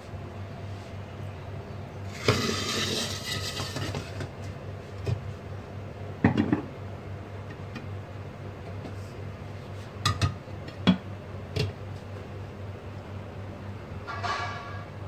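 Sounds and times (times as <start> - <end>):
steady low hum: 0.0 - 15.0
cookware scraping: 2.1 - 4.3, 14.1 - 14.9.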